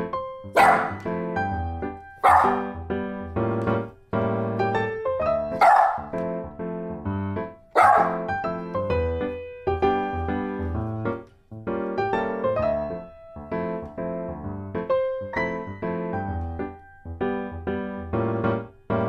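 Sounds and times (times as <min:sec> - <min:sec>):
piano music: 0:00.0 - 0:19.0
dog barking: 0:00.6 - 0:01.1, 0:02.2 - 0:02.7, 0:05.5 - 0:06.2, 0:07.7 - 0:08.3.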